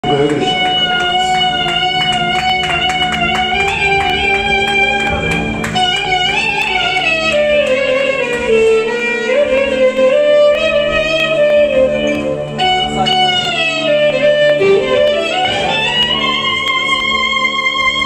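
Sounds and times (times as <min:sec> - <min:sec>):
clarinet improvising melody: 0:00.0 - 0:18.0
low band drone: 0:00.0 - 0:18.0.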